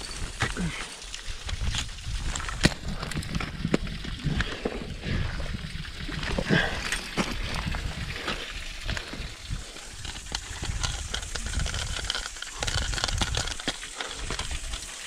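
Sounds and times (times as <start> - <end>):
heavy breathing and grunts: 0.4 - 1.0, 6.3 - 9.8
wind rumble on microphone: 1.2 - 14.9
ice axe striking ice: 1.6 - 3.8.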